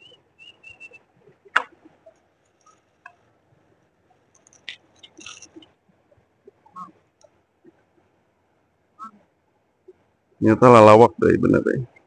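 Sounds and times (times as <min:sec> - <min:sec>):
faint small clicks and rustles: 0:01.2 - 0:08.2.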